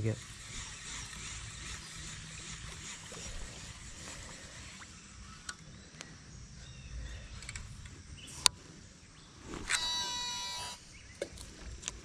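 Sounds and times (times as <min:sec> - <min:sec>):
fishing reel whining: 0:00.0 - 0:05.6, 0:09.6 - 0:10.9
high electronic tone sliding in pitch: 0:09.7 - 0:10.9.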